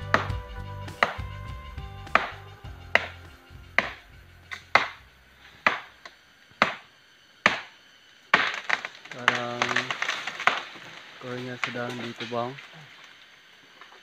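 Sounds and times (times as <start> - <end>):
machete chopping tree trunk: 2.1 - 3.2, 3.8 - 5.0, 5.6 - 5.9, 6.6 - 10.9.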